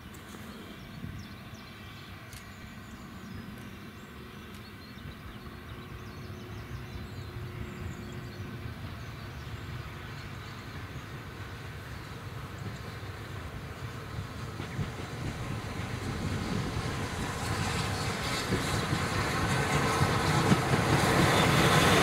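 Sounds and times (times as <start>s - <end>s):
steam train rumbling: 5.5s - 22.0s.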